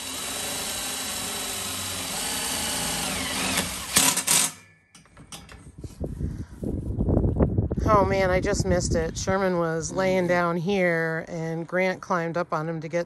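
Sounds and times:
cordless drill driving screw: 0:00.0 - 0:04.6.

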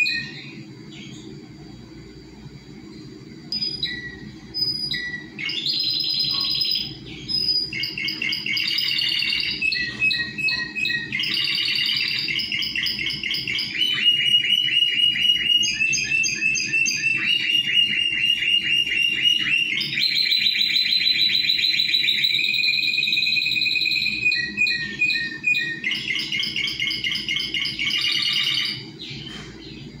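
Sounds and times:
canary singing trills: 0:00.0 - 0:01.4, 0:03.4 - 0:30.0.

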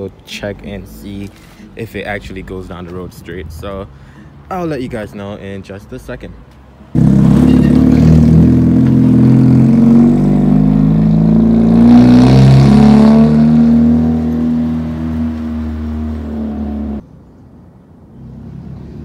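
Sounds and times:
car engine accelerating past: 0:07.0 - 0:17.0.

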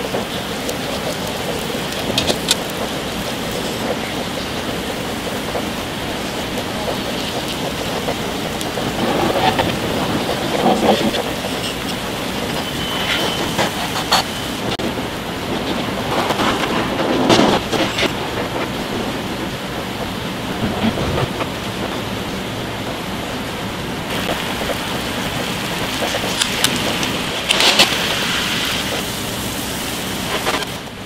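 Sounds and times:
egg sizzling in a pan: 0:24.1 - 0:30.9.

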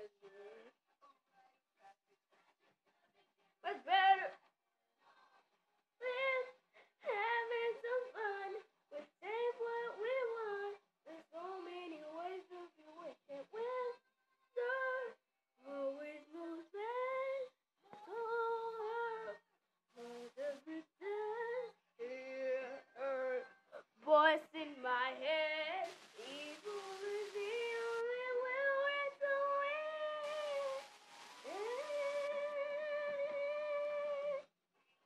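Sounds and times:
person singing unaccompanied: 0:20.0 - 0:34.5
rushing hiss: 0:25.8 - 0:28.0, 0:30.2 - 0:32.3.

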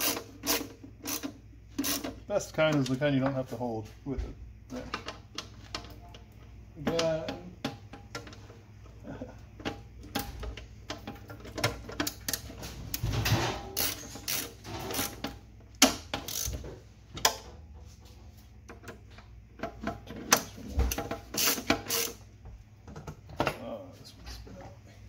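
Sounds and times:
socket ratchet clicking: 0:00.0 - 0:02.1, 0:13.8 - 0:15.2, 0:16.2 - 0:16.6, 0:21.4 - 0:22.2.

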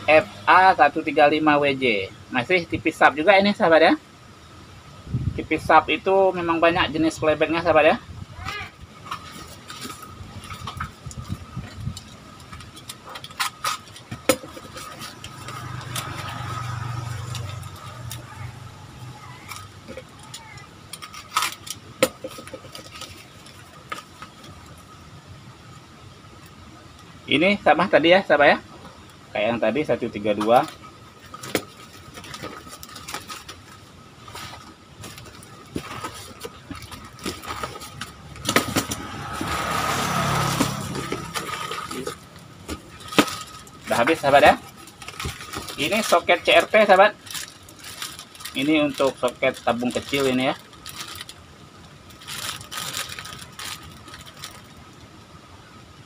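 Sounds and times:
engine hum: 0:00.0 - 0:56.0
cardboard and tape tearing: 0:31.3 - 0:51.4, 0:52.2 - 0:54.6.

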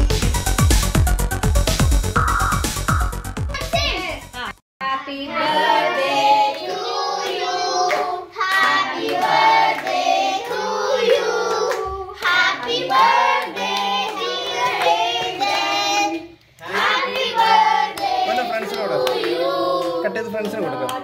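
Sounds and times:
children singing: 0:04.8 - 0:21.0
hand clapping: 0:07.2 - 0:10.6, 0:16.4 - 0:21.0.

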